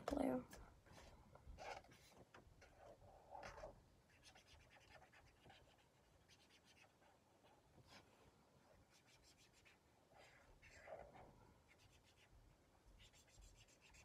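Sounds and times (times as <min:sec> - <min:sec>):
marker scratching on paper: 0:01.6 - 0:07.1, 0:08.9 - 0:14.0.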